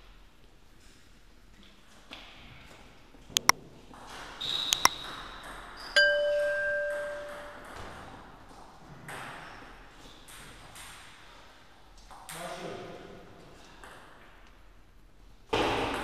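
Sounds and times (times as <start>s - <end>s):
mouse clicks: 4.7s - 4.9s
notification bell ding: 6.0s - 7.8s.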